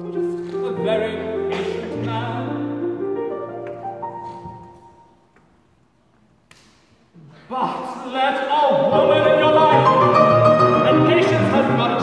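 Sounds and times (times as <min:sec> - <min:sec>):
man singing: 0:00.0 - 0:03.0, 0:07.8 - 0:12.0
piano accompaniment: 0:00.0 - 0:05.2, 0:08.9 - 0:12.0.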